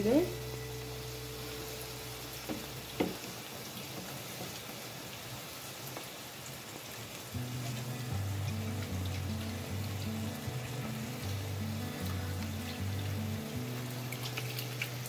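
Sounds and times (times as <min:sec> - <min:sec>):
background music: 0:00.0 - 0:03.1, 0:07.4 - 0:15.0
spinach sizzling in a pan: 0:00.0 - 0:15.0.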